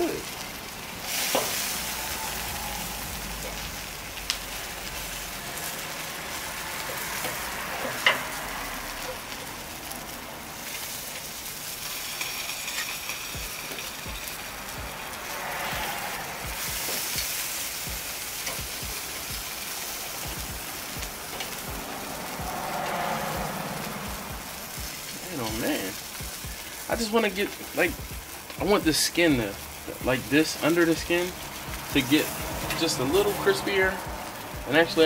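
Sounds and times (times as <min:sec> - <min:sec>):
chicken sizzling over charcoal: 0:00.0 - 0:35.0
metal tongs turning meat: 0:10.6 - 0:15.7.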